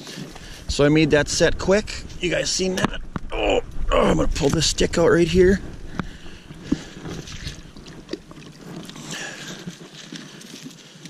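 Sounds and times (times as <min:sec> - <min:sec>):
water sloshing: 0:00.0 - 0:11.0
stick scraping and rustling: 0:04.2 - 0:11.0.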